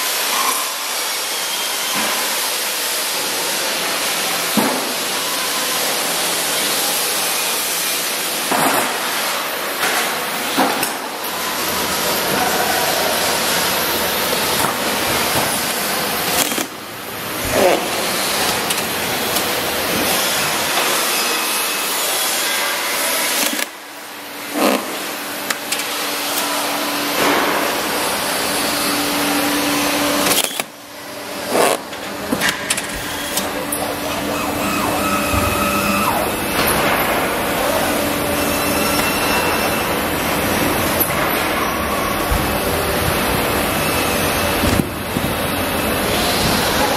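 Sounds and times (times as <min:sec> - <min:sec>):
packaging machine whirring hiss: 0:00.0 - 0:46.9
steady hum: 0:23.3 - 0:46.9.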